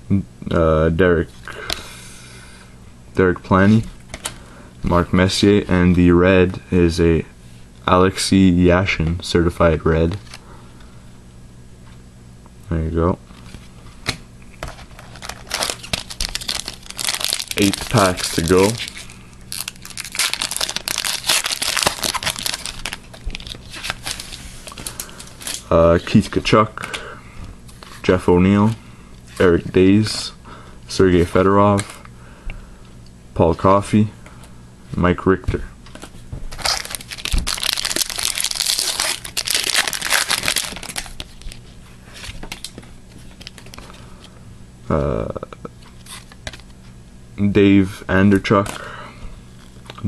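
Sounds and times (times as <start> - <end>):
foil wrapper crinkling: 14.6 - 25.7, 36.5 - 43.9.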